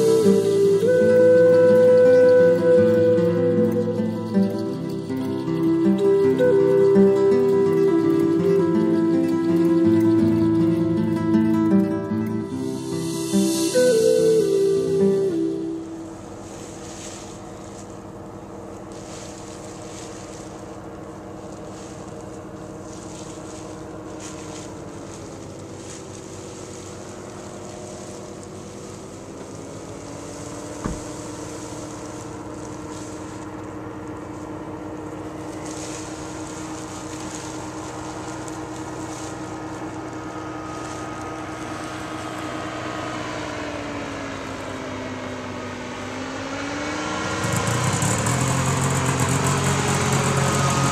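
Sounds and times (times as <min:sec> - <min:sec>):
engine and propeller droning: 0:00.0 - 0:50.9.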